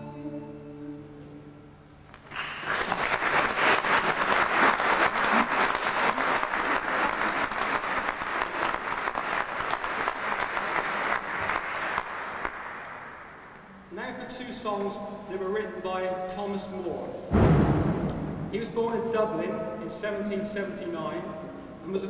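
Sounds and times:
person singing with classical guitar: 0:00.0 - 0:01.6
audience applauding: 0:02.1 - 0:13.7.

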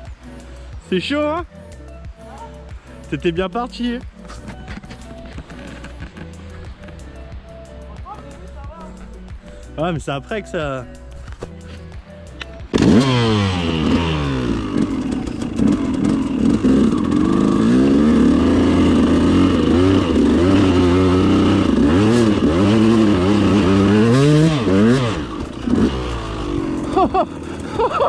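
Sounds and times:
two-stroke engine revving: 0:12.6 - 0:28.0.

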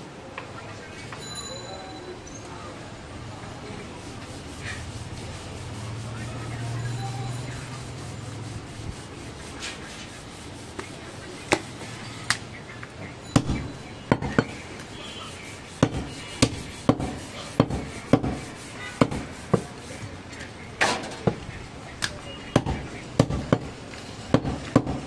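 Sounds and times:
knife chopping onto wooden block: 0:15.8 - 0:18.4.

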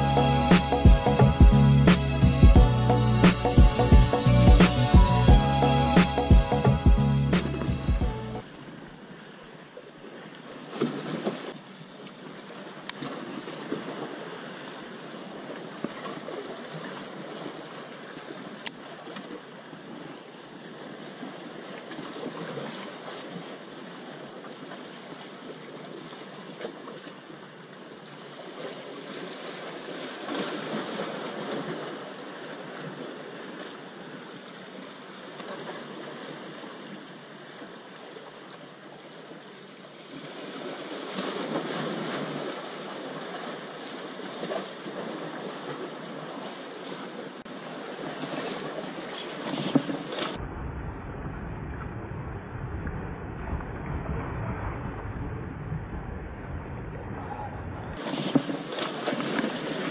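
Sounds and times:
waves washing against rocks: 0:40.1 - 0:50.4, 0:58.0 - 0:59.9.

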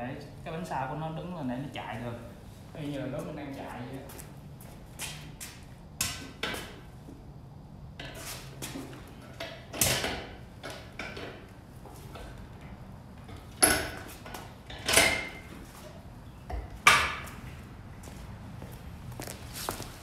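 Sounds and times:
metal stands clanking on concrete: 0:08.0 - 0:12.4, 0:13.3 - 0:17.4.

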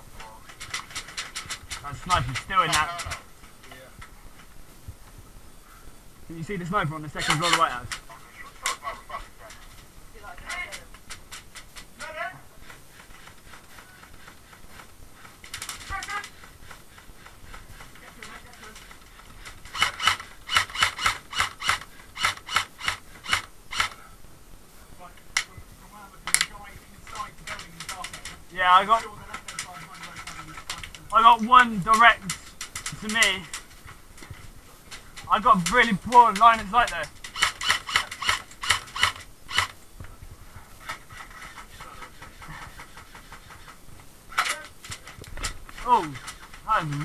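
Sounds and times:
airsoft rifle shots: 0:19.7 - 0:24.0, 0:35.4 - 0:39.8.

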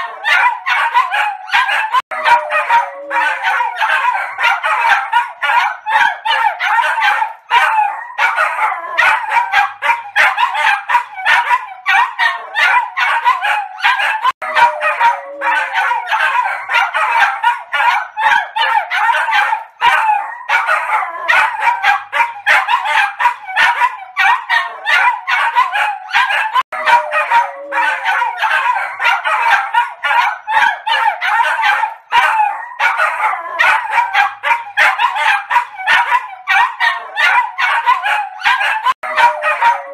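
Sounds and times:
small dogs barking: 0:00.0 - 0:39.9.

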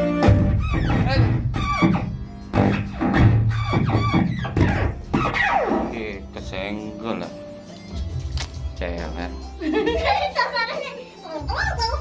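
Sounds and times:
backing music: 0:00.0 - 0:12.0.

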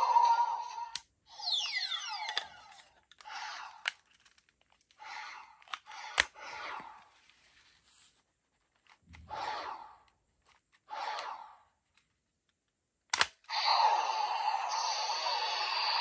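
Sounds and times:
plastic parts scraping: 0:02.2 - 0:09.4
plastic pieces snapping into place: 0:13.1 - 0:13.5.

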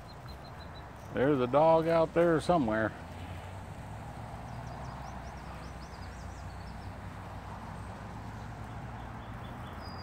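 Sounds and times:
bird chirping: 0:00.0 - 0:01.5, 0:04.4 - 0:07.2, 0:07.8 - 0:10.0.

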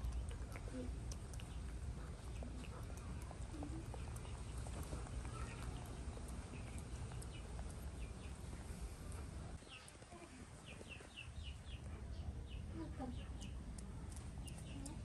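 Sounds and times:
faint clicks: 0:00.0 - 0:11.2, 0:13.2 - 0:15.0
birds chirping in falling peeps: 0:03.9 - 0:08.8, 0:10.6 - 0:13.6.

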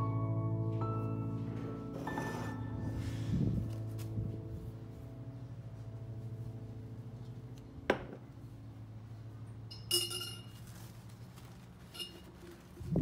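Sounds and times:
low steady hum: 0:00.0 - 0:13.0
tableware clink ringing: 0:09.7 - 0:10.6.

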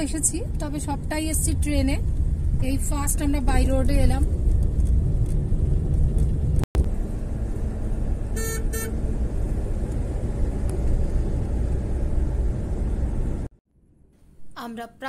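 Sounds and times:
road and engine rumble: 0:00.0 - 0:13.6
car horn beeps: 0:08.3 - 0:09.0.

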